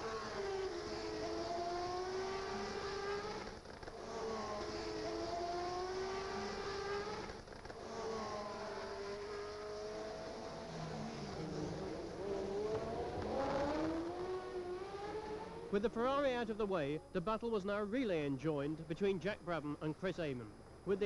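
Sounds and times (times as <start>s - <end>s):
racing engines at high revs: 0.0s - 16.0s.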